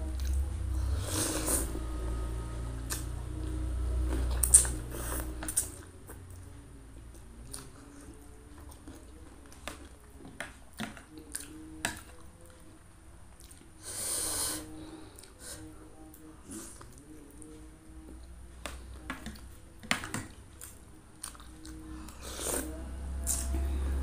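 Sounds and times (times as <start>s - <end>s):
slurping noodles: 0.8s - 1.9s
soft chewing: 2.8s - 24.0s.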